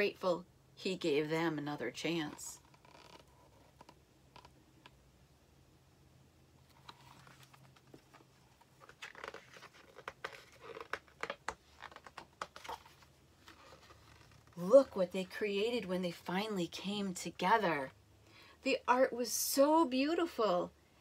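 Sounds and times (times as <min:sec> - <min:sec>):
book pages rustling: 0:06.6 - 0:15.0.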